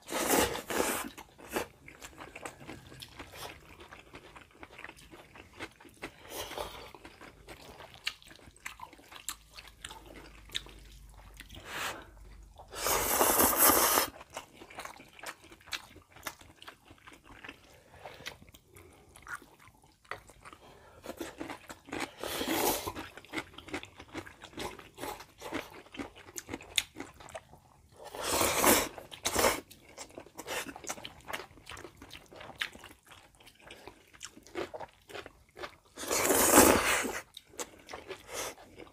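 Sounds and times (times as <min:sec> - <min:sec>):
loud noodle slurp: 0:00.0 - 0:01.2, 0:12.7 - 0:14.2, 0:28.1 - 0:29.6, 0:36.0 - 0:37.2
chewing with wet smacks: 0:01.1 - 0:12.7, 0:14.1 - 0:22.2, 0:22.9 - 0:28.0, 0:29.0 - 0:36.0, 0:37.1 - 0:38.9.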